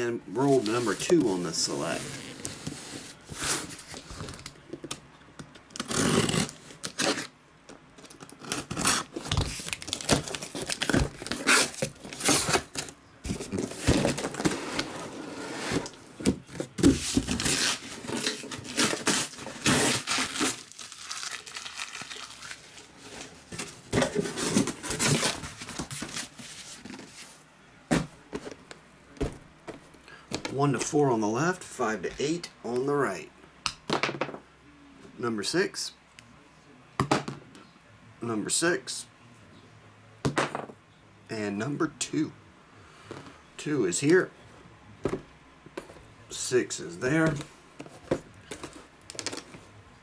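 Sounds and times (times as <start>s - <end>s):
cardboard rustling and scraping: 0.4s - 4.4s, 8.4s - 20.7s, 22.4s - 30.9s
tape tearing: 5.7s - 7.3s, 8.0s - 14.9s, 16.8s - 22.8s.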